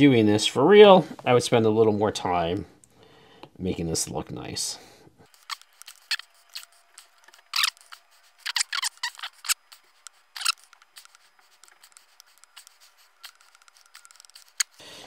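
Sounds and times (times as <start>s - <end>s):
stylus scratching on glass screen: 5.3s - 14.8s.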